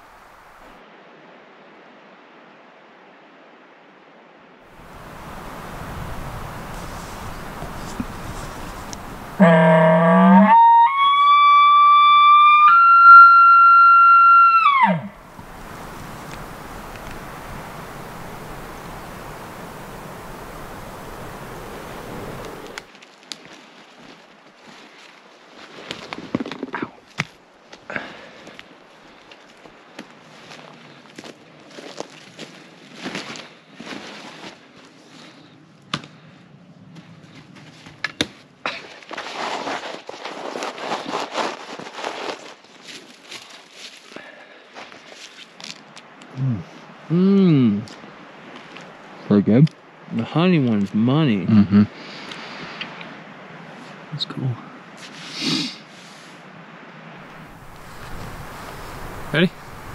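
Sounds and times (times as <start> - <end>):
faint rustling: 4.8 - 9.4
elk bugle call whistle: 9.4 - 15.2
low grunt: 46.4 - 47.9.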